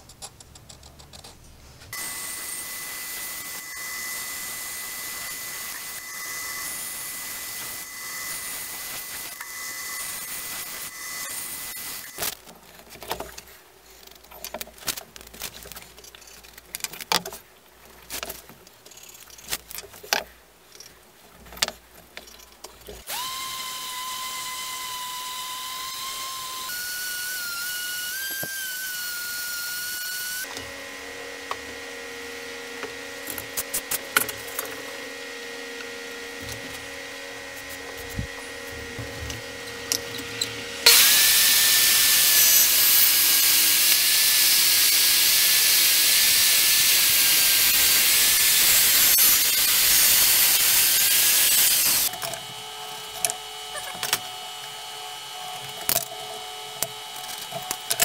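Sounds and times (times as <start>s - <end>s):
band saw cutting wood: 1.9s - 12.3s, 23.0s - 58.0s
steady whine: 23.0s - 58.0s.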